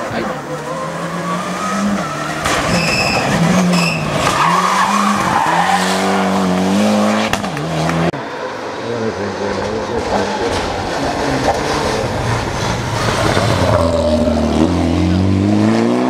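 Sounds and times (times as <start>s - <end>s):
car engine revving: 0.0s - 16.0s
high squeal: 1.4s - 5.8s.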